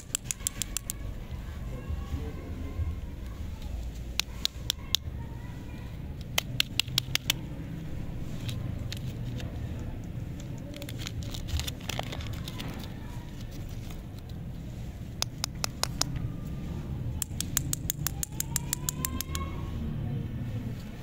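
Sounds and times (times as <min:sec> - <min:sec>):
plastic wrapper crackling: 0:10.4 - 0:14.3.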